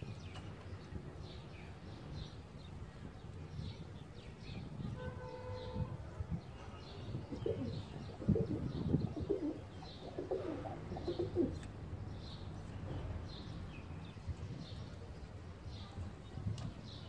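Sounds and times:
pigeons cooing: 7.3 - 11.6.

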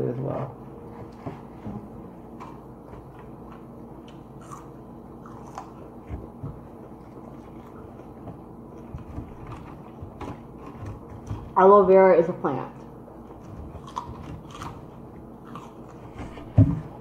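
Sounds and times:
faint steady hum: 0.0 - 17.0
people chewing fried food: 2.3 - 11.6, 13.1 - 17.0.

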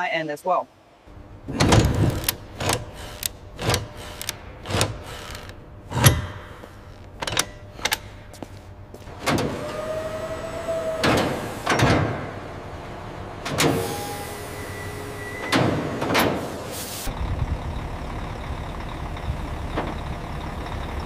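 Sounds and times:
background hum: 0.6 - 13.7.

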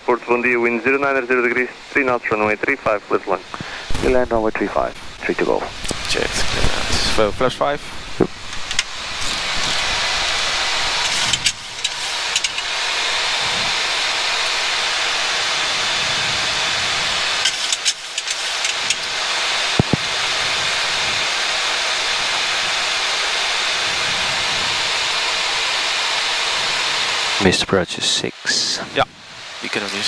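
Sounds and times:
rushing air in cockpit: 8.5 - 27.5.

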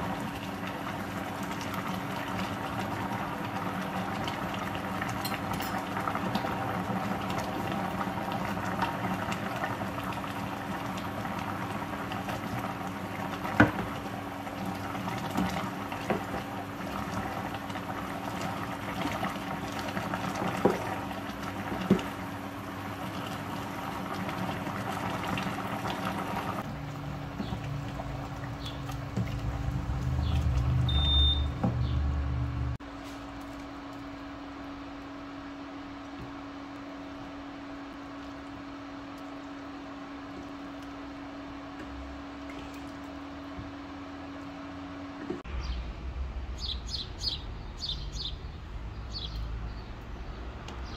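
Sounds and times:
soup bubbling in a pot: 0.0 - 45.5
low rumble: 45.4 - 50.9.

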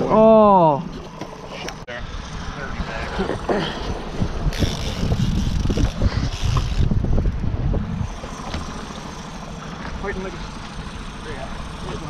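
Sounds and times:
outboard motor running: 0.0 - 12.0
wind gusting across microphone: 3.8 - 8.7.

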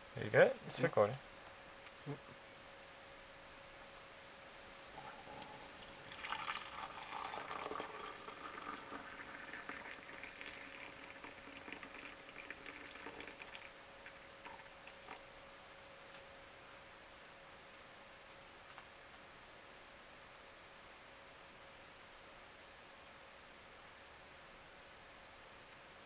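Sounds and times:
hot liquid pouring into mug: 5.0 - 15.2.

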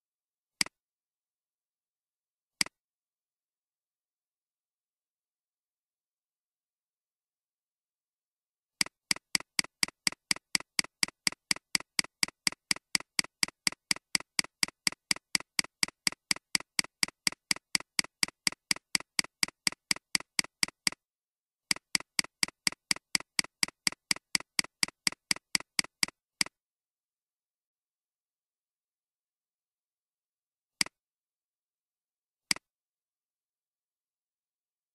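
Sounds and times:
computer mouse clicks: 8.8 - 21.0, 21.7 - 26.6.

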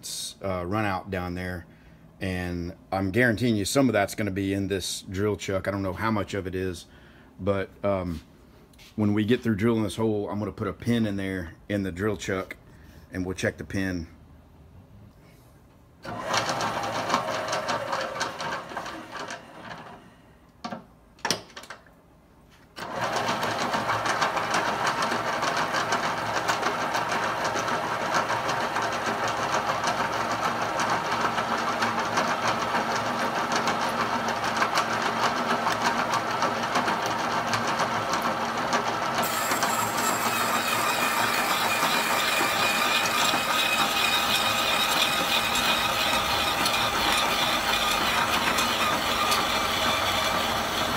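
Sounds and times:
hole saw grinding into steel: 39.2 - 50.9.

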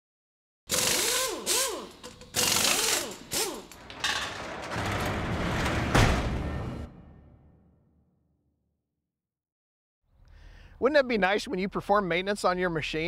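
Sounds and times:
power tool motor whirring: 0.7 - 3.8.

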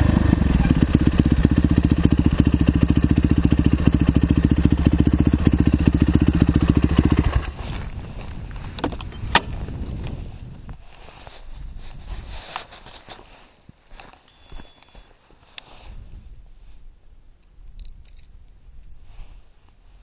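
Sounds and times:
motorcycle engine running: 0.0 - 10.6.

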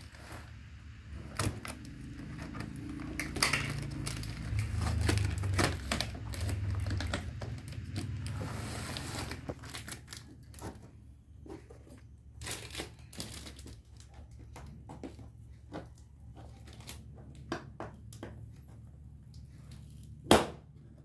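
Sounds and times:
packing tape peeling off: 1.4 - 10.6.

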